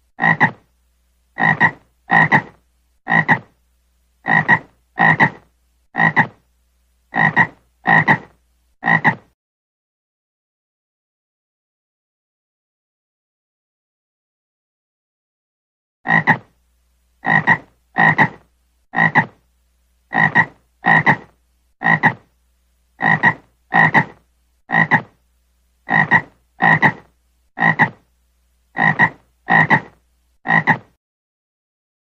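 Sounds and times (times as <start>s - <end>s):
frog croaking: 0.2s - 0.7s, 1.4s - 3.6s, 4.2s - 6.4s, 7.1s - 9.3s, 16.1s - 16.5s, 17.2s - 19.4s, 20.1s - 22.3s, 23.0s - 25.2s, 25.8s - 28.0s, 28.7s - 30.9s.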